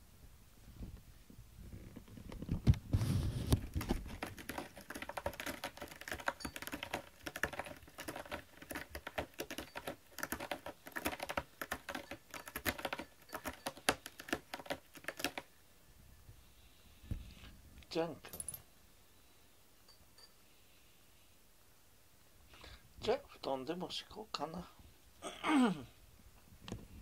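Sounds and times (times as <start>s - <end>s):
cat grooming clicks and smacks: 3.6s - 15.5s.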